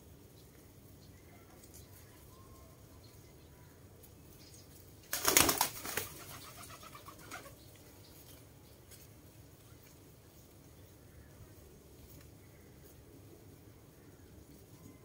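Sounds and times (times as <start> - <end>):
pigeon flapping wings: 5.1 - 7.5.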